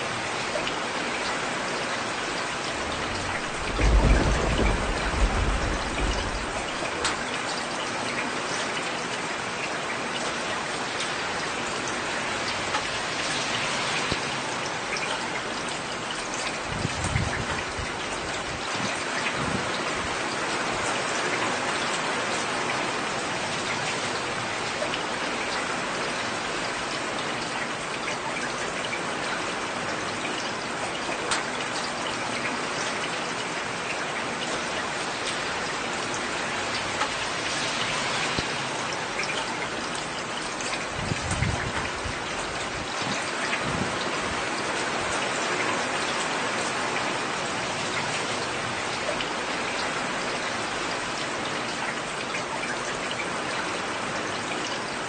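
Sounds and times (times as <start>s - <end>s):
heavy rain: 0.0s - 55.0s
low rumble: 2.8s - 6.8s.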